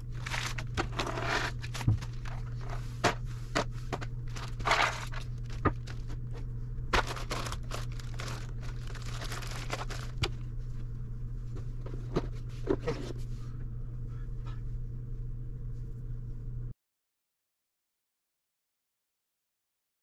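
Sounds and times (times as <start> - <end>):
plastic bag crinkling: 0.0 - 2.8, 4.2 - 6.2, 6.9 - 10.4
steady low hum: 0.0 - 16.8.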